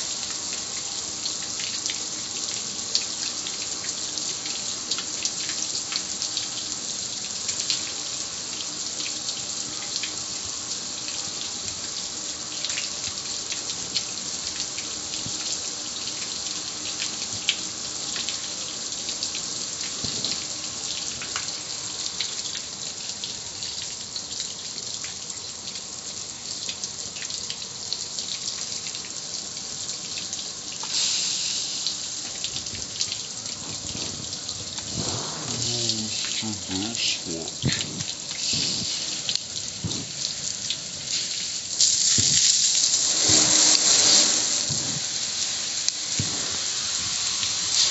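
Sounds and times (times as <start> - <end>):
water dripping: 0.0 - 47.9
hose spray hissing on metal grill: 30.8 - 47.9.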